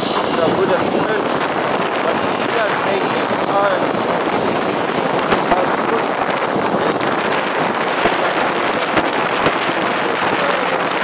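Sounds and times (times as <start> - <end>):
road noise: 0.0 - 11.0
wind over microphone: 0.0 - 11.0.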